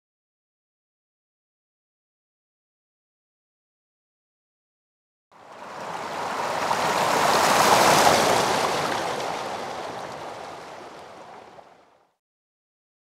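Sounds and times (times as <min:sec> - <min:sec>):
rushing noise swell: 0:05.4 - 0:11.4.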